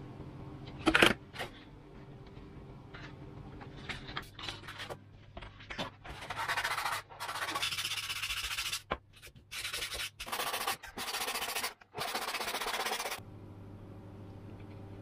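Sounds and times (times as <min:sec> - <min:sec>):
sanding block scratching foam: 0:06.3 - 0:08.8, 0:09.5 - 0:13.2.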